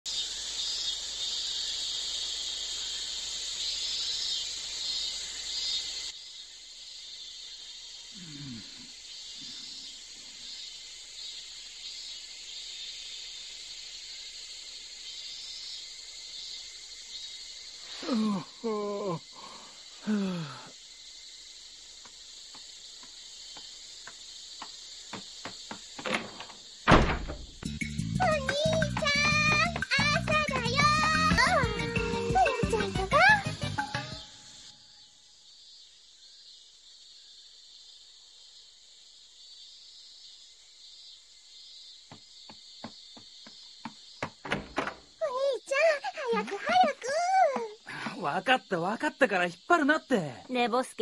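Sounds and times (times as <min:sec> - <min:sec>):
cicadas buzzing: 0:00.1 - 0:51.0
person groaning: 0:08.2 - 0:08.9, 0:18.0 - 0:20.7
door flung open with bang: 0:26.0 - 0:27.7, 0:44.4 - 0:45.2.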